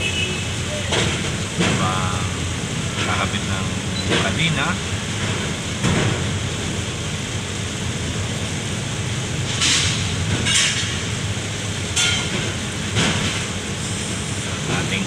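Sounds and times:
steel rebars clanking: 11.9s - 13.5s.

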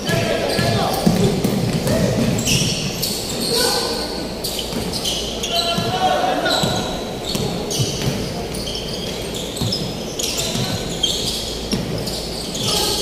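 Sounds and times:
sneaker squeaks: 0.0s - 13.0s
basketball bouncing on hardwood: 6.6s - 8.2s.

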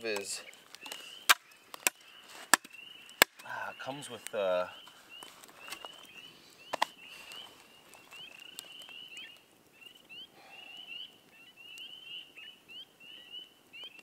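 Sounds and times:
frogs peeping: 0.4s - 14.0s.

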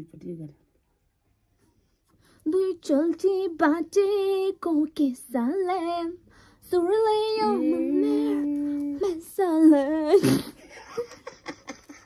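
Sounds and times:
woman singing long notes: 6.8s - 10.2s.

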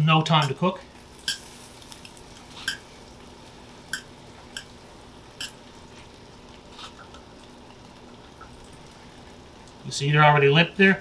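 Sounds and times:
metal tongs clicking on pan: 3.9s - 4.8s.

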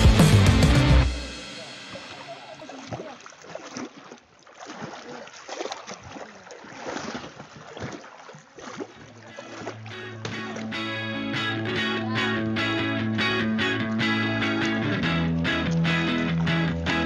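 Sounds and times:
water splashing from swimming: 1.2s - 10.9s, 13.9s - 17.0s.

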